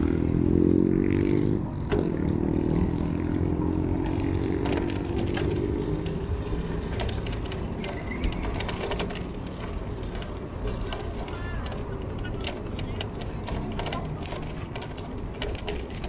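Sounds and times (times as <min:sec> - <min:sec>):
motor vehicle engine hum: 0:00.0 - 0:16.0
road rumble: 0:00.0 - 0:16.0
light clicks and rattles: 0:03.2 - 0:16.0.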